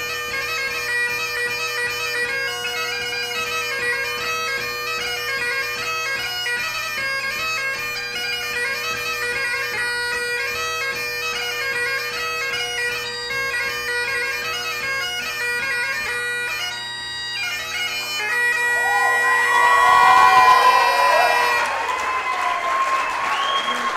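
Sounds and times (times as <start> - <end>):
bagpipe playing: 0.0 - 22.8
audience cheering and whooping: 18.7 - 23.9.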